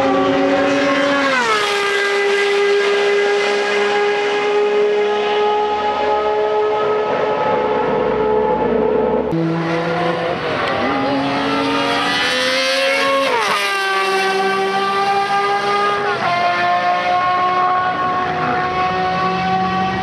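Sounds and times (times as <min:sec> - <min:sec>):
racing car engine revving: 0:00.0 - 0:20.0.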